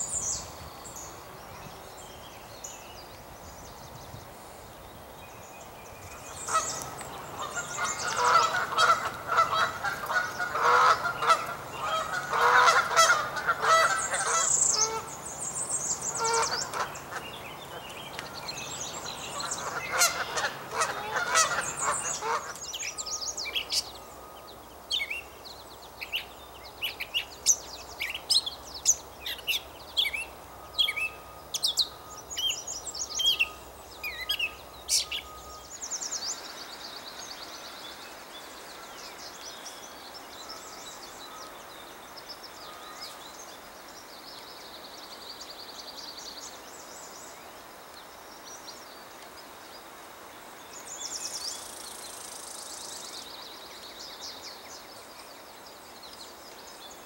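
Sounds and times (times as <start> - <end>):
overlapping bird calls: 5.6 - 24.4.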